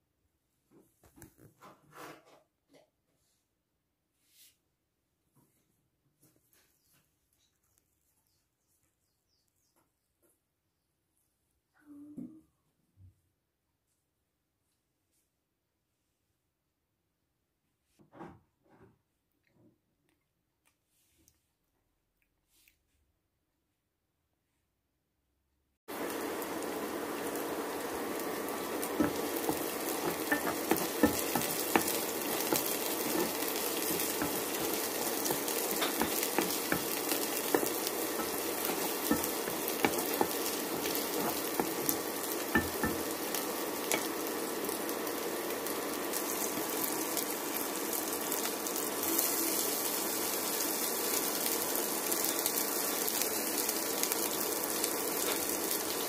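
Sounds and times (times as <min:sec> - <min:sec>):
onions sizzling in oil: 0:25.9 - 0:56.0
wooden spatula stirring: 0:27.6 - 0:44.3.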